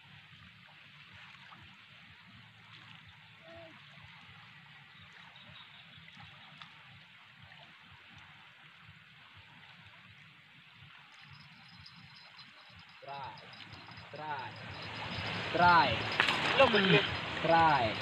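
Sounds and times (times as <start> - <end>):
fast-flowing river rushing: 11.2 - 18.0.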